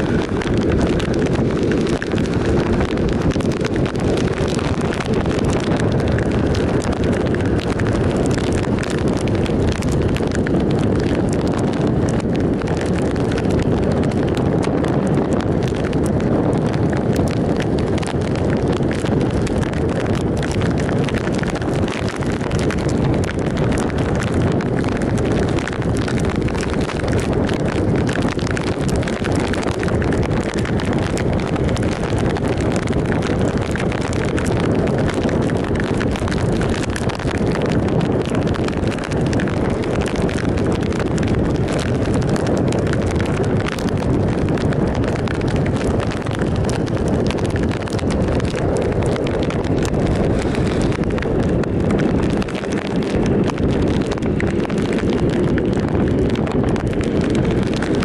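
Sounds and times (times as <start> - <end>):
tyres on wet road: 0.0 - 58.0
wind buffeting microphone: 0.0 - 58.0.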